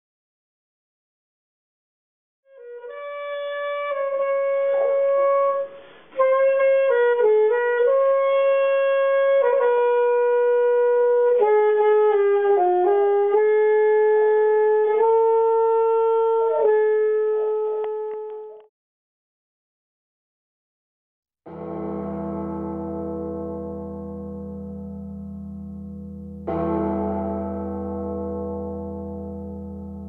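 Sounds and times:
solo saxophone melody: 0:02.5 - 0:18.6.

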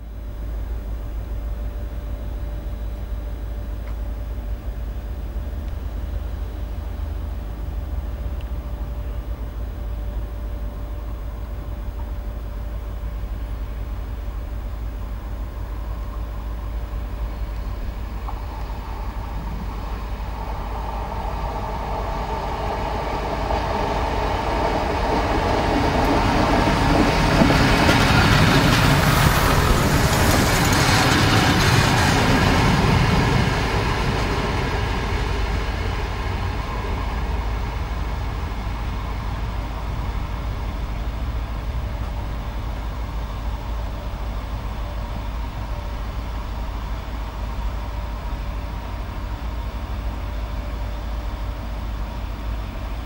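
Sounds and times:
diesel railcar engine: 0:00.0 - 0:53.0
wheels on rails rumbling: 0:15.3 - 0:45.4.

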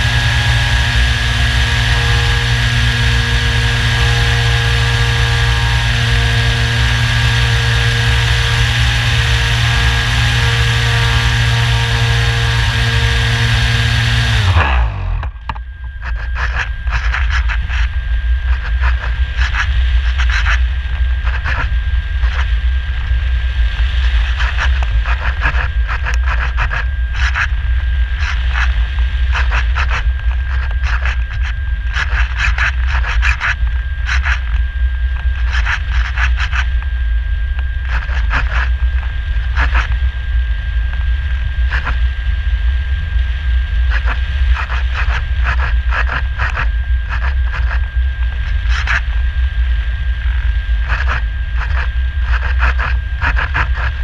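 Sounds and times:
electric motor and propeller whine: 0:00.0 - 0:54.0
crackles: 0:43.0 - 0:54.0.

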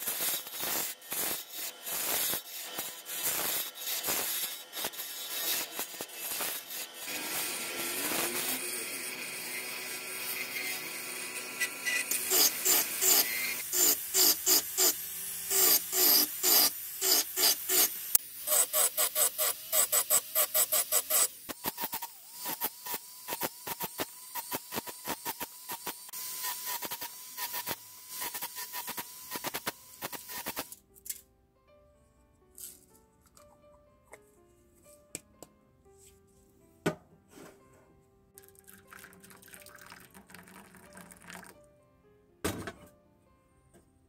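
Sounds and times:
rotary tool motor whine: 0:00.2 - 0:30.8.

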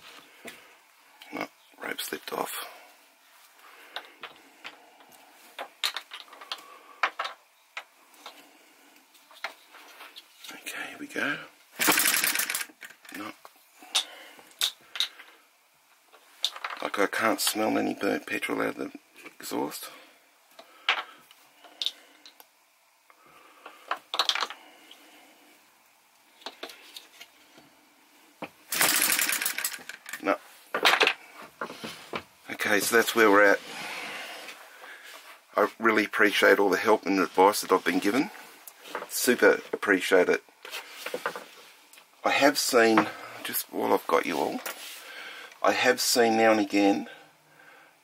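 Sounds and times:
short fast rattle: 0:28.7 - 0:30.0.

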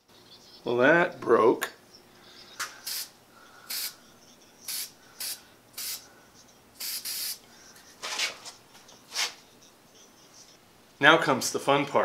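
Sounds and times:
aerosol spray can hissing: 0:02.8 - 0:04.0, 0:04.6 - 0:06.1, 0:06.8 - 0:07.4.

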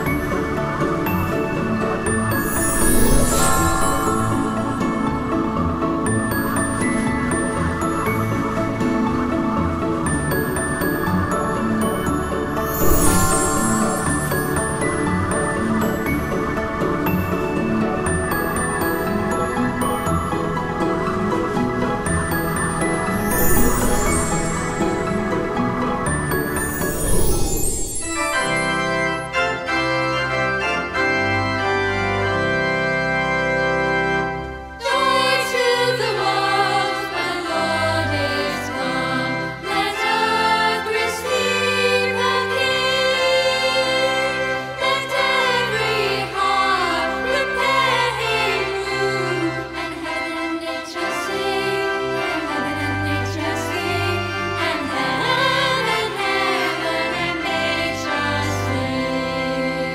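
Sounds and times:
organ-like chords: 0:00.0 - 0:59.9
person singing with vibrato: 0:02.4 - 0:08.6, 0:10.3 - 0:16.1, 0:34.8 - 0:59.9.

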